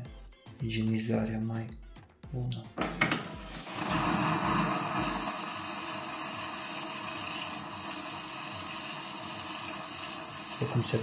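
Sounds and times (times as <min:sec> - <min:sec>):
steam hissing: 0:03.6 - 0:11.0.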